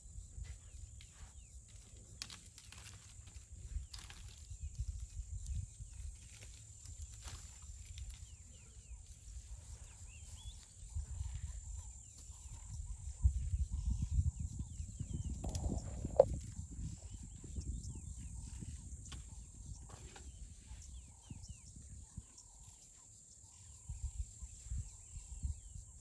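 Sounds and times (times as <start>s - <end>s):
faint bird chirps: 0.0s - 26.0s
high insect whine: 0.0s - 26.0s
elephants feeding thuds and rustling: 0.6s - 12.7s.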